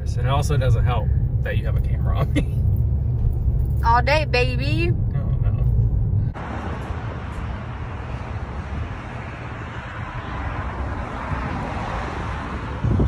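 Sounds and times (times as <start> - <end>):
road traffic: 0.0 - 13.0
wind on microphone: 8.2 - 13.0.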